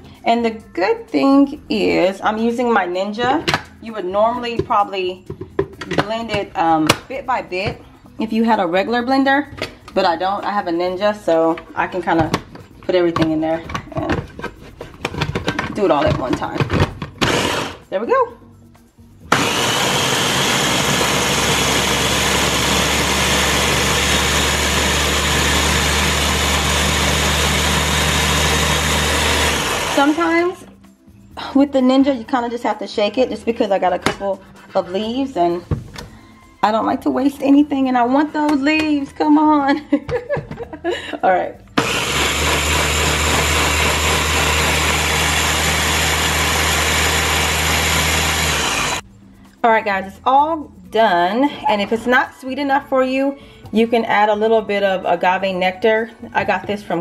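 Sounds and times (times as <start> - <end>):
blender motor running: 17.2 - 17.8, 19.3 - 30.4, 41.8 - 49.0.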